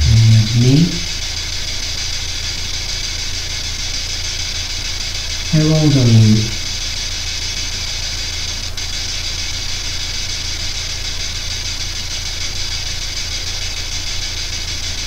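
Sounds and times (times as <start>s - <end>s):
low hum: 0.0s - 1.2s, 5.5s - 6.8s
radio static hiss: 0.0s - 1.5s, 5.4s - 9.9s.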